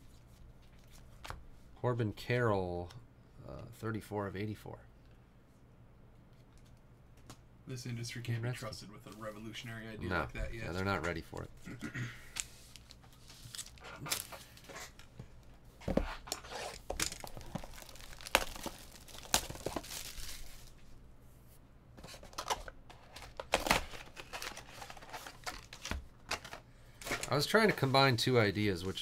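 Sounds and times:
card pack wrappers tearing: 0:12.3 - 0:15.0, 0:16.3 - 0:20.8, 0:22.3 - 0:27.5.

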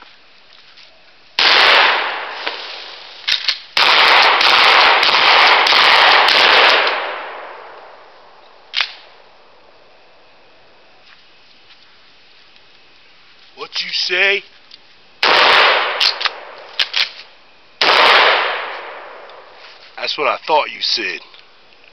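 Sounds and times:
echo of blast: 0:01.4 - 0:03.2, 0:03.8 - 0:09.2, 0:15.2 - 0:16.7, 0:17.8 - 0:19.6
shotgun firing: 0:01.4 - 0:07.8, 0:15.2 - 0:17.2, 0:17.8 - 0:19.5.

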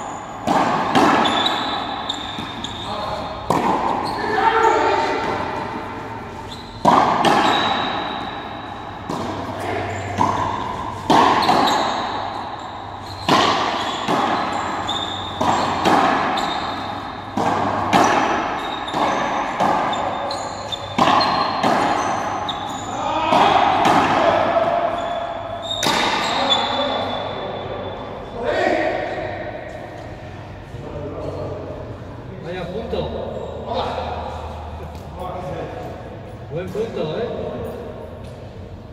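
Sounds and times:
ball cracking off wall with echo: 0:00.4 - 0:02.6, 0:06.8 - 0:12.4, 0:13.2 - 0:16.7.

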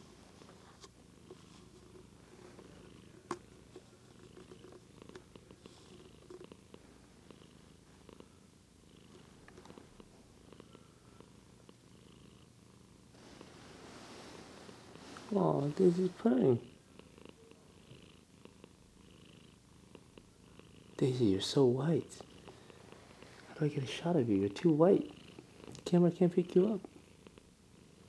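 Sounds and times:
cat purring: 0:00.0 - 0:28.0.

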